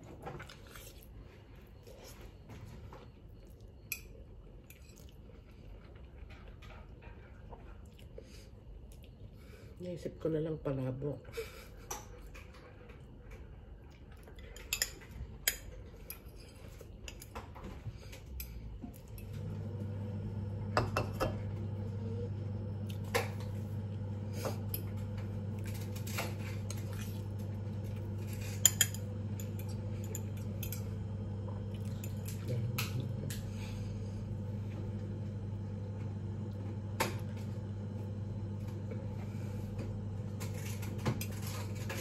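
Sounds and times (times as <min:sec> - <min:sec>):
steady low hum: 0:00.1 - 0:42.0
fork clinking against ceramic bowl: 0:28.4 - 0:30.8.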